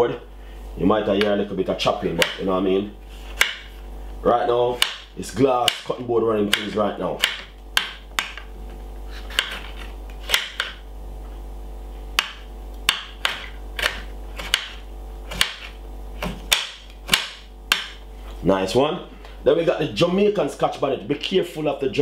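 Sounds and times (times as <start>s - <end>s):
steady low hum: 0.0s - 22.0s
knife chopping on glass board: 2.2s - 2.4s, 3.3s - 3.7s, 4.7s - 8.4s, 9.3s - 10.8s, 12.2s - 18.0s.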